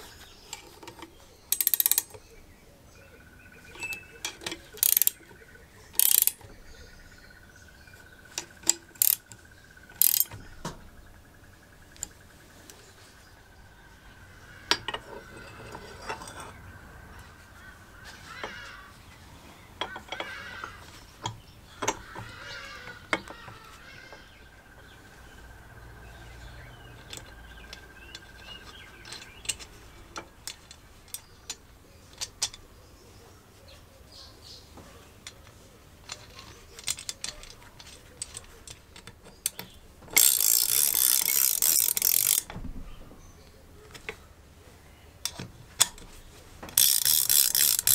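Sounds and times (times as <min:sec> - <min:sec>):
metallic clicks and clinks of tools: 0:00.5 - 0:02.3, 0:03.7 - 0:05.3, 0:05.9 - 0:06.5, 0:08.3 - 0:10.4, 0:27.0 - 0:32.6, 0:35.2 - 0:42.6, 0:46.7 - 0:47.9.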